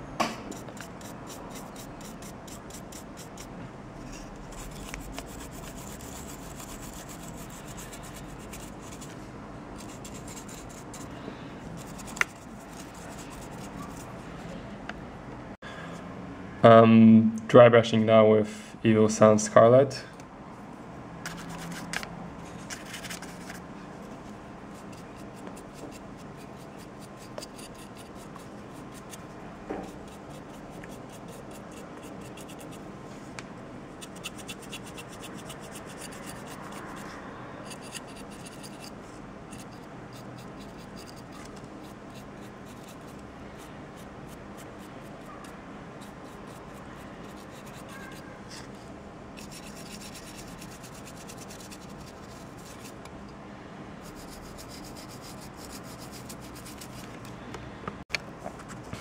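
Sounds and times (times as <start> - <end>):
brush bristles scratching plastic: 0.5 - 9.2, 9.8 - 11.1, 11.8 - 14.1, 24.7 - 32.8, 34.0 - 48.8, 49.4 - 53.1, 54.0 - 57.2.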